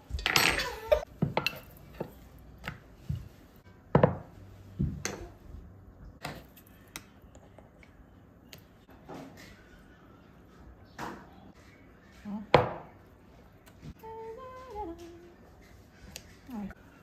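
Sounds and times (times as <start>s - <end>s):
ceramic dishes knocking on wood: 3.9s - 5.3s.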